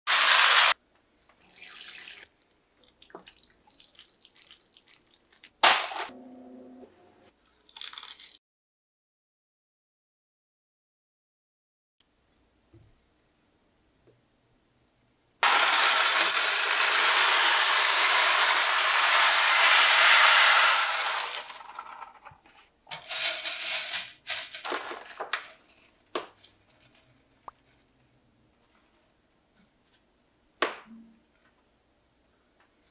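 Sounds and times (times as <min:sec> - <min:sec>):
dry pasta shells rattling into dish: 0:07.6 - 0:08.4, 0:15.4 - 0:22.3, 0:22.9 - 0:27.8.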